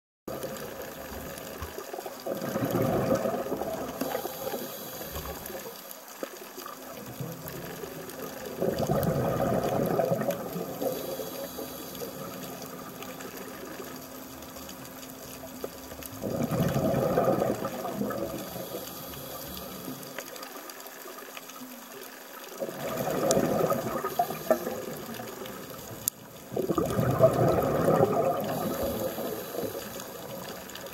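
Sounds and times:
quiet hiss: 0.3 - 30.9
diver's breath bubbling: 2.2 - 5.6, 8.2 - 13.7, 16.1 - 20.1, 22.6 - 25.8, 26.5 - 30.9.

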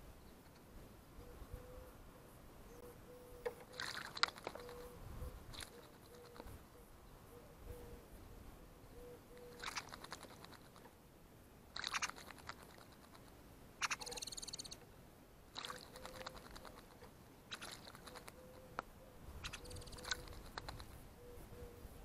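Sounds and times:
bird splashing in water: 3.7 - 4.6, 9.6 - 10.8, 11.7 - 12.9, 15.5 - 16.9.

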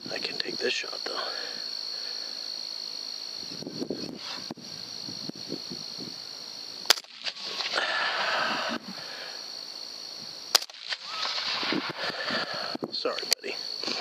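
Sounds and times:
insects trilling: 0.0 - 14.0
rifle shots: 6.9 - 7.8, 10.5 - 12.1.

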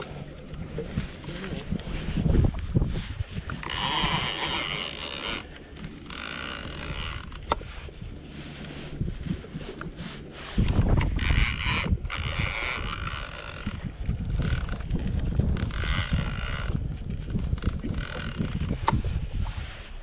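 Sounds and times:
wind rumble on microphone: 0.0 - 20.0
fishing reel whirring: 3.3 - 19.2.

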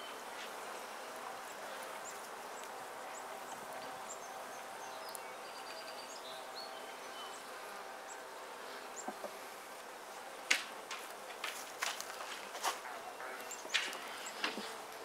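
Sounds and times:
honeybees buzzing: 0.0 - 15.0.

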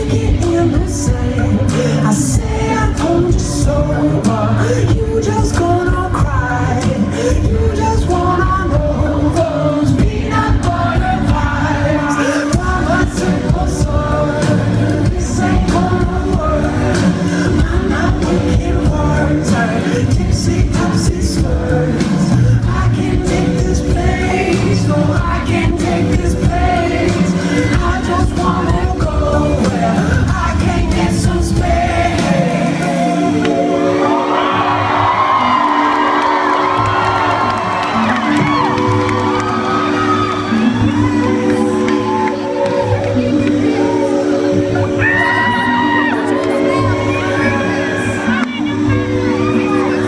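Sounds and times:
man singing: 0.0 - 33.3
live pop band playing: 0.0 - 50.0.

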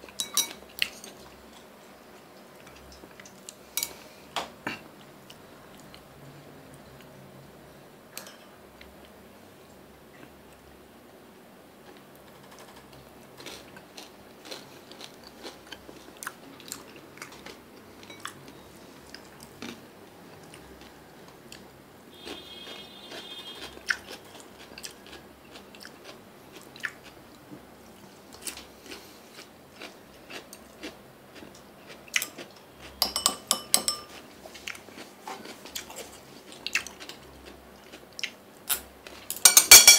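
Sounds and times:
person chewing and crunching food: 12.6 - 33.0, 33.9 - 39.3.

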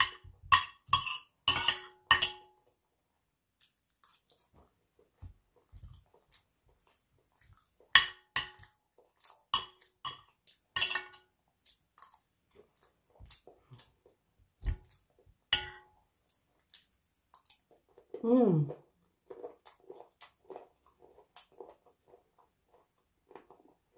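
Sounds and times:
cutlery clinking on a plate: 0.0 - 2.6, 9.5 - 11.3, 15.6 - 15.9
person chewing: 3.5 - 23.9.

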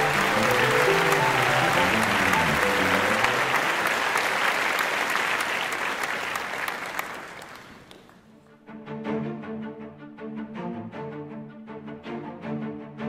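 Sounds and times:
audience applause: 0.0 - 8.3.

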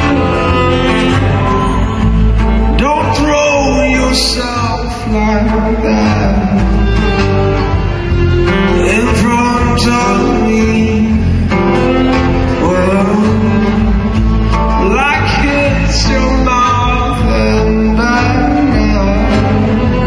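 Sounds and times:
acoustic guitar: 0.0 - 20.0
man singing into a microphone: 2.8 - 7.1, 8.7 - 11.9, 12.5 - 20.0.

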